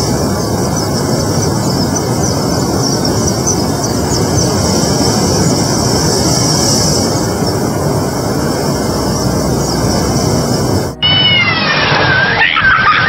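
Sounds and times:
high hiss: 0.0 - 13.0
outdoor rushing noise: 0.0 - 13.0.

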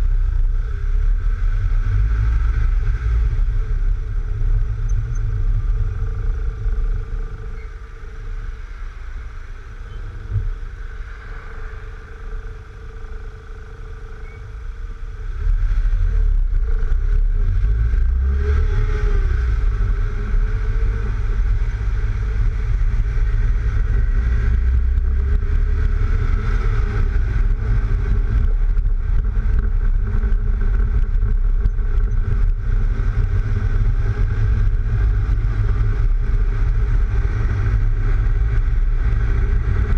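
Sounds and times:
car engine: 0.0 - 39.9
tyre noise on road: 0.0 - 39.9
wind buffeting on microphone: 14.2 - 39.9.

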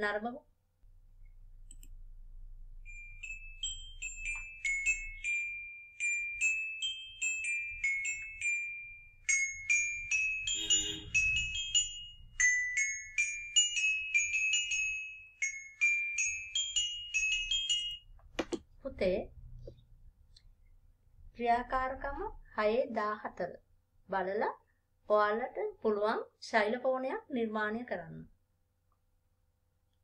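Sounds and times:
toy xylophone tune: 2.9 - 18.1.

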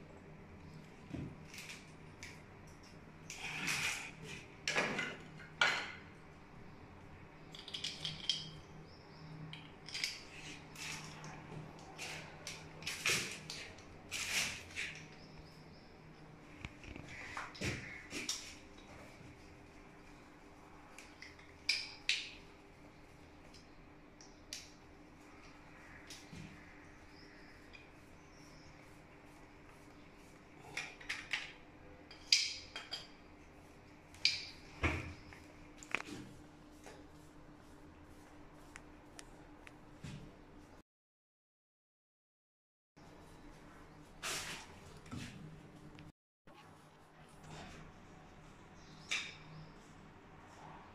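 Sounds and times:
small tools clicking and scraping: 7.5 - 8.7, 9.5 - 15.2.

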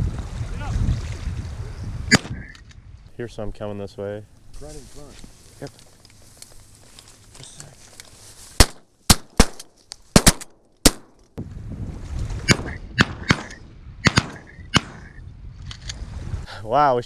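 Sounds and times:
shotgun shots: 2.1 - 2.5, 8.6 - 11.2, 12.5 - 15.2.

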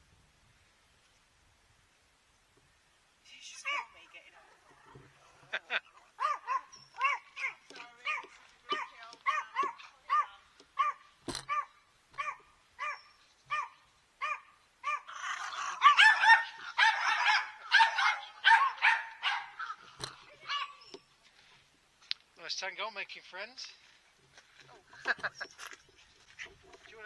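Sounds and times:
dog yapping: 6.1 - 20.9.

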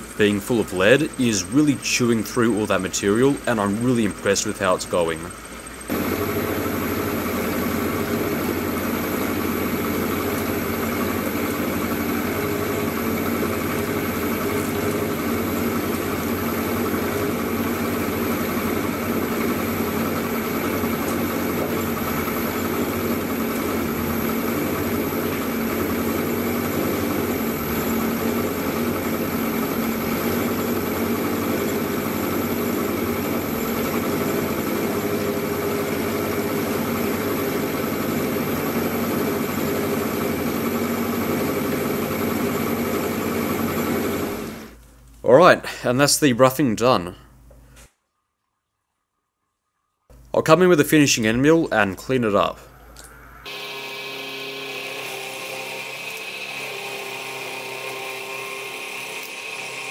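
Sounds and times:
milling machine cutting steel: 0.0 - 44.8, 52.4 - 59.9
motor running: 0.0 - 44.8, 52.4 - 59.9.

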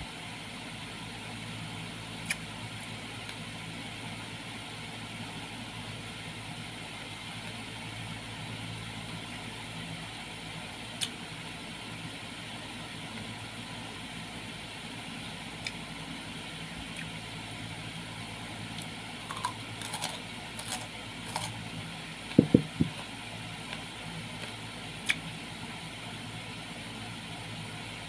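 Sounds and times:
person chewing fruit: 16.9 - 17.2, 18.8 - 21.6, 25.0 - 25.2
low hum: 17.7 - 24.8
loud dull thumps: 22.4 - 23.0.

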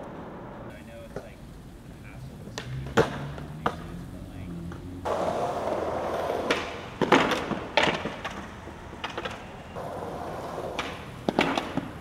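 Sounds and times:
skateboard wheels rolling on concrete: 0.0 - 12.0
skateboard clacking: 1.0 - 1.5, 2.4 - 4.0, 4.6 - 12.0.

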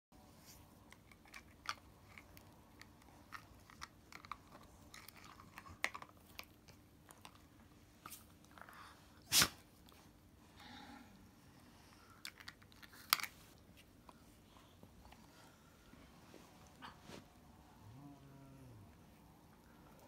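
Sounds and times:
puppies chewing stick: 0.7 - 8.9.

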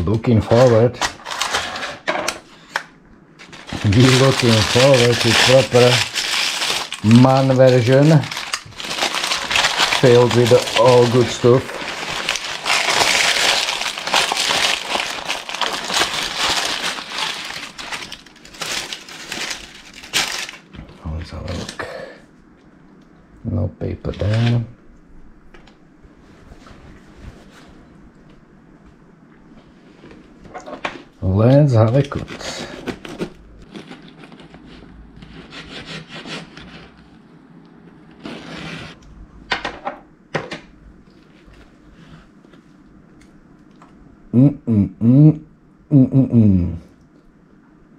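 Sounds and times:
wrapping crinkling and crackling: 0.5 - 1.9, 3.4 - 21.8, 31.8 - 35.4
knife sawing through baked dish: 35.2 - 36.9.

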